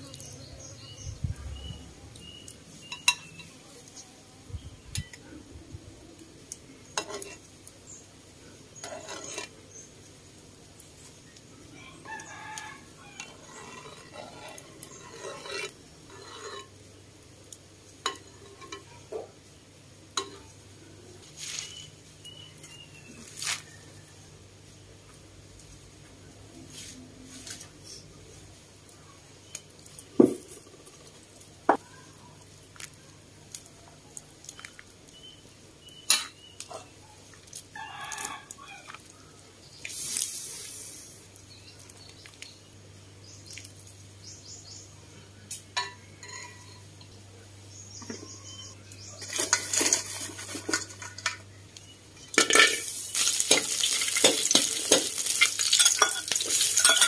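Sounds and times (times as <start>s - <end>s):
rooster crowing: 11.7s - 13.7s, 37.7s - 39.0s
cookware clinking and knocking: 45.8s - 46.8s, 52.2s - 57.0s.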